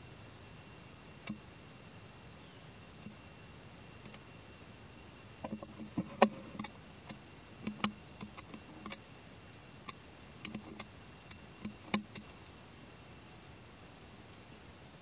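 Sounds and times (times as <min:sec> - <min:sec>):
infant monkey suckling clicks: 0:05.4 - 0:09.0, 0:09.8 - 0:12.3.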